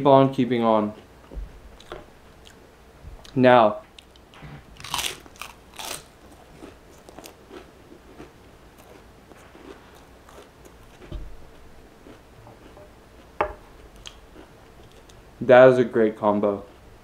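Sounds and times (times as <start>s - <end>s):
quiet chewing crunches: 1.8s - 2.6s, 4.0s - 15.2s
loud crunches of cracker: 4.8s - 9.0s
dull bump: 11.0s - 11.5s.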